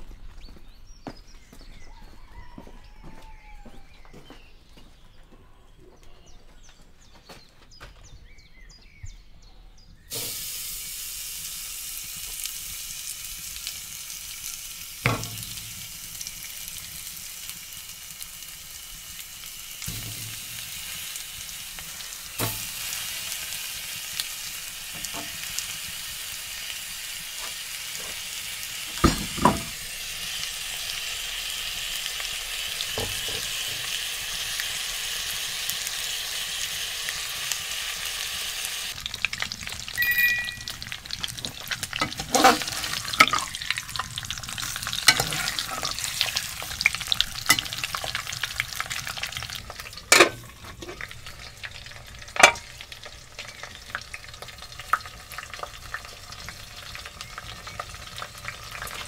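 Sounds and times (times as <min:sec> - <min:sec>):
food sizzling in hot oil: 0:10.1 - 0:59.0
knocks in metal pot: 0:15.1 - 0:15.8, 0:29.0 - 0:29.8, 0:50.1 - 0:50.4.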